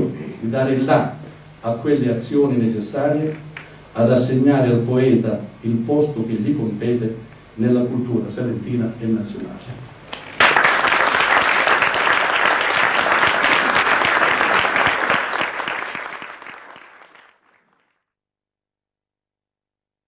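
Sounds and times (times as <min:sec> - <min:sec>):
audience applauding: 0:10.1 - 0:18.0.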